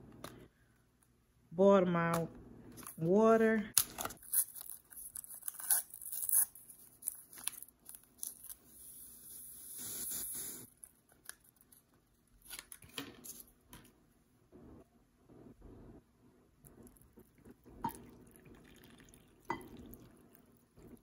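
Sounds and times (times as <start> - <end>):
paper packet tearing and crinkling: 3.8 - 9.2.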